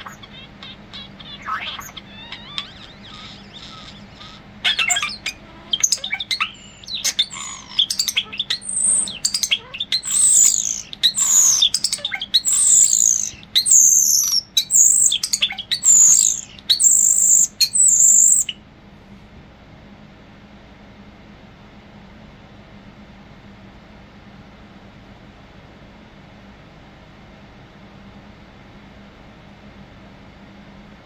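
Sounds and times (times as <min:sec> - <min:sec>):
starling singing: 0:00.0 - 0:18.6.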